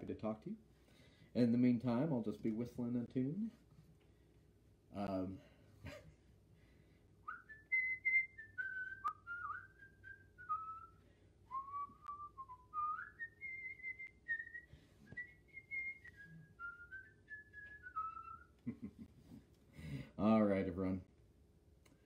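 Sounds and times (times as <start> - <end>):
man whistling a tune: 7.2 - 18.8.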